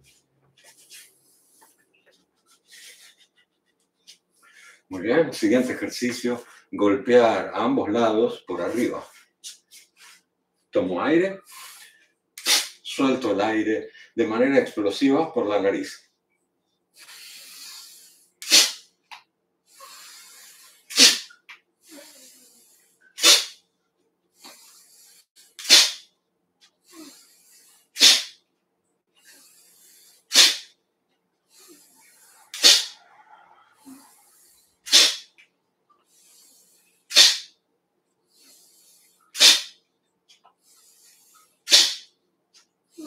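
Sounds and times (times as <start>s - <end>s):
person exhaling sharply through nose: 17.0s - 18.8s, 19.7s - 23.6s, 24.4s - 26.0s, 26.8s - 28.4s, 29.2s - 30.7s, 31.5s - 33.1s, 33.8s - 35.3s, 36.1s - 37.5s, 38.4s - 39.8s.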